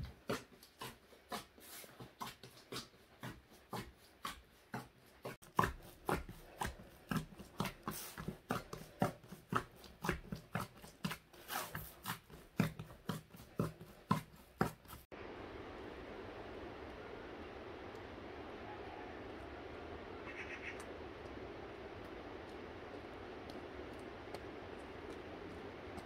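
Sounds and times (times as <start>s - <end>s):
dough kneading squelches: 0.0s - 15.2s.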